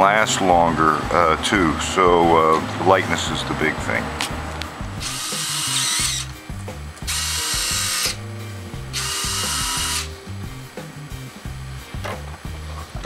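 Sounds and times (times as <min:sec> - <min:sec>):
background music with bass: 0:00.0 - 0:13.0
servos whirring: 0:05.0 - 0:06.4, 0:07.0 - 0:08.2, 0:08.9 - 0:10.1.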